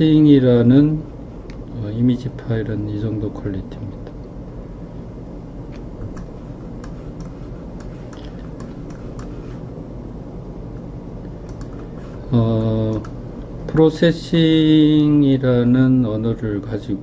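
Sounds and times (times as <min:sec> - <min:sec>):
low electrical hum: 0:00.0 - 0:17.0
computer mouse clicks: 0:05.7 - 0:09.6, 0:10.8 - 0:11.9, 0:12.6 - 0:13.8.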